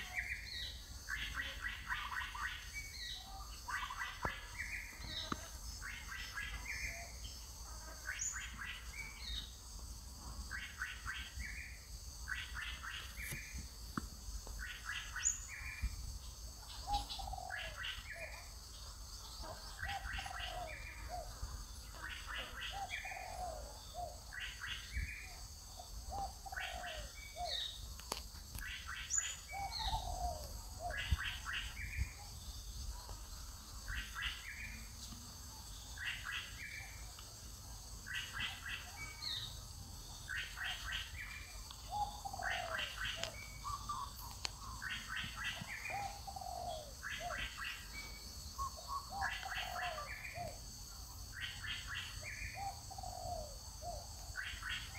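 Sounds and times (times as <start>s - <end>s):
bird calling: 0.0s - 9.6s, 14.4s - 16.0s, 16.6s - 18.6s, 19.4s - 33.0s, 38.0s - 50.6s, 51.3s - 54.9s.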